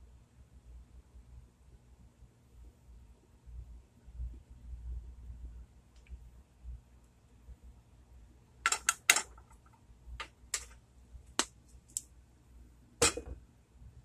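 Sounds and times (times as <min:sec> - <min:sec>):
kitchen items clicking and knocking: 0:08.7 - 0:10.8, 0:13.0 - 0:13.4.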